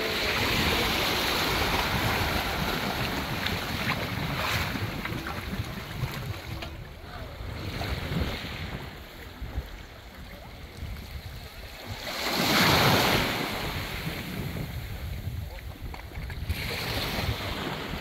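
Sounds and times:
sea surf: 0.0 - 15.7, 16.4 - 18.0
wind buffeting microphone: 0.0 - 18.0.

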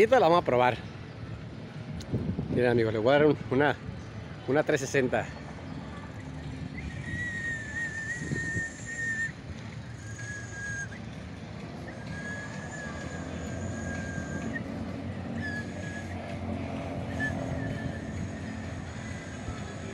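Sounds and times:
street background noise: 0.0 - 19.9
high steady whistle tone: 6.6 - 19.9.

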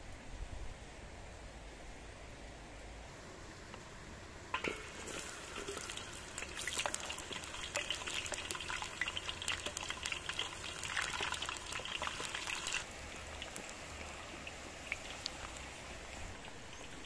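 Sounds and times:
potatoes sizzling in hot oil: 4.6 - 17.0.

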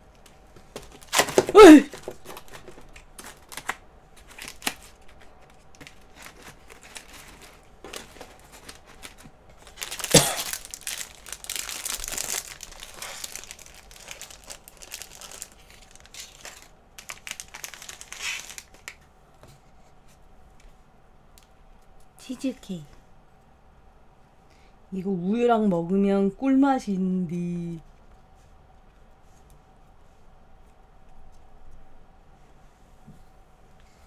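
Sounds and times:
plastic wrapper crinkling and tearing: 0.7 - 19.1.

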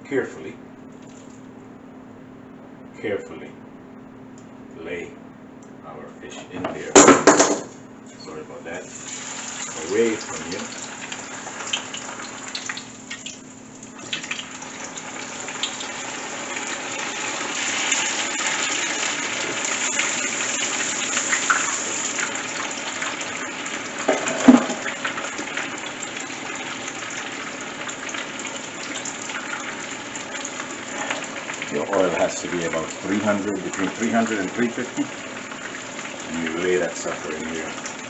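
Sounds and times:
fish deep-frying in oil: 8.8 - 38.0.

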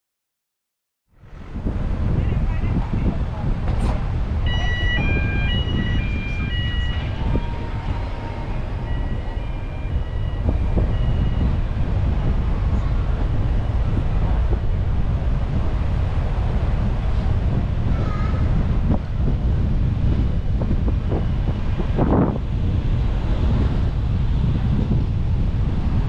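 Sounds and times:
car rumbling: 1.2 - 26.0
wind buffeting microphone: 1.2 - 26.0
electronic chime melody: 4.5 - 7.4, 8.8 - 11.6.

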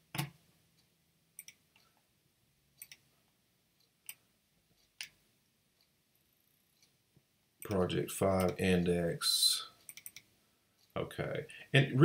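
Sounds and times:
computer mouse clicks: 1.4 - 1.9, 2.8 - 3.1, 3.8 - 5.2, 9.8 - 10.3.

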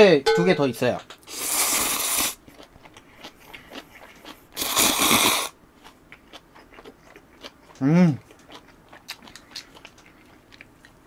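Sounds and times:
person slurping noodles: 1.3 - 2.4, 4.6 - 5.6
faint chewing clicks: 2.4 - 4.6, 5.8 - 11.0.

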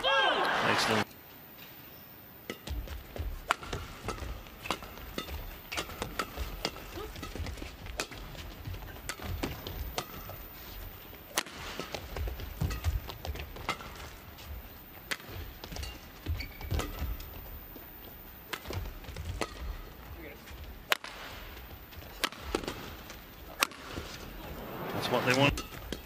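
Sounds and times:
rackets hitting shuttlecock: 2.4 - 14.3, 15.0 - 17.5, 18.4 - 24.3
shoe squeaks: 16.2 - 16.7.

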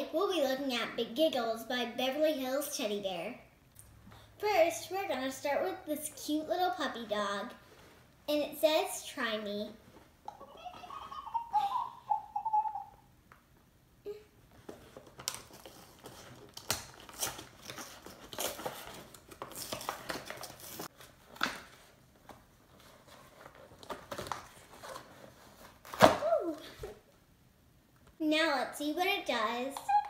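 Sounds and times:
high wavering voice: 10.3 - 13.1
plastic and cardboard crinkling: 14.5 - 27.0.

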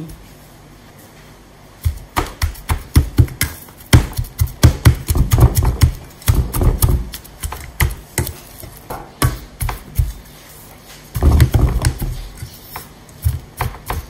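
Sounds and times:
masher pounding in metal bowl: 1.8 - 10.2, 11.2 - 12.3, 13.2 - 14.0.

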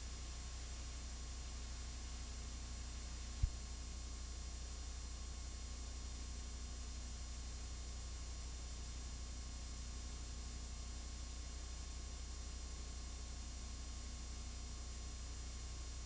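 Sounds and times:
tape hum and hiss: 0.0 - 4.8.

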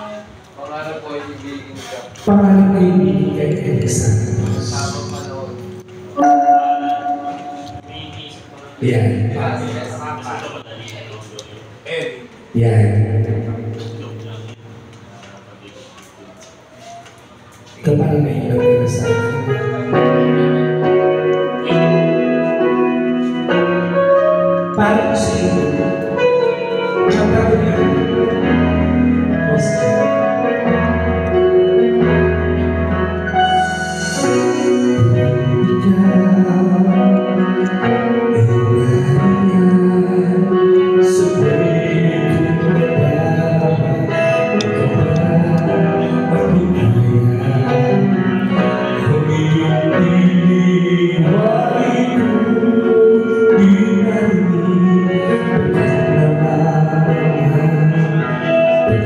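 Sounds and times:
keyboard and organ chords: 2.2 - 59.0
music over speakers: 16.3 - 59.0
man singing into a microphone: 24.6 - 31.0, 33.5 - 59.0.

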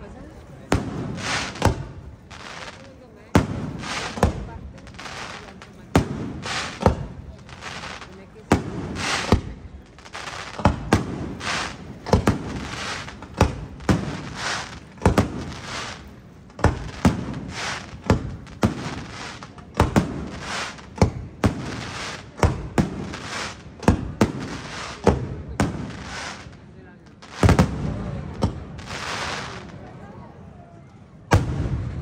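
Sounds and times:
firework shells bursting: 5.0 - 26.5.

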